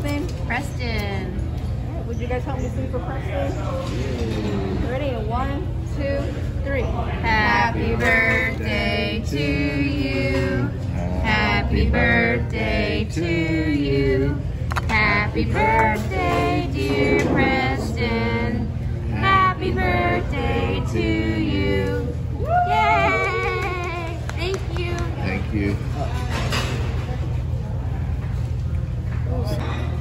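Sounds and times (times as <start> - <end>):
people singing: 7.2 - 22.4.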